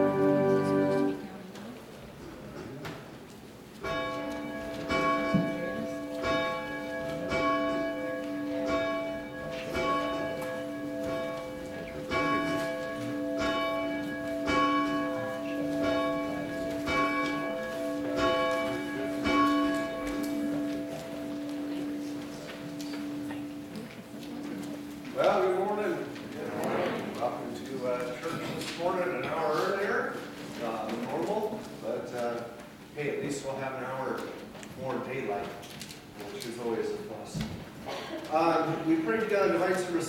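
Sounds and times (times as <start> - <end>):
church bell tolling: 0.0 - 1.3, 3.8 - 26.4.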